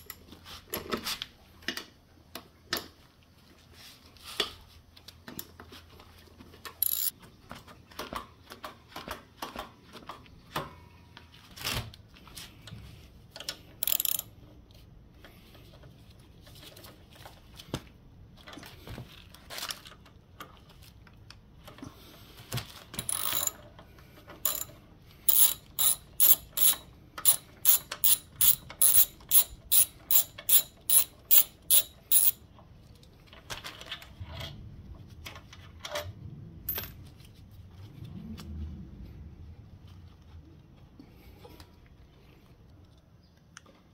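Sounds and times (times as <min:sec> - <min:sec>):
ratchet wrench clicking: 0:06.8 - 0:07.1, 0:13.8 - 0:14.3, 0:23.0 - 0:23.6, 0:24.5 - 0:24.7, 0:25.3 - 0:32.4
tools and parts knocking: 0:06.8 - 0:07.1, 0:23.0 - 0:23.6, 0:24.4 - 0:32.4.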